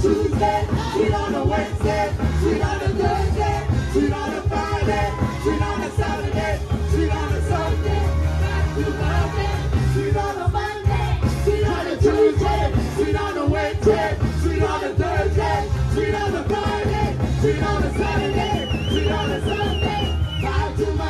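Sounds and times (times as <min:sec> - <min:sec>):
gospel music over loudspeakers: 0:00.0 - 0:21.0.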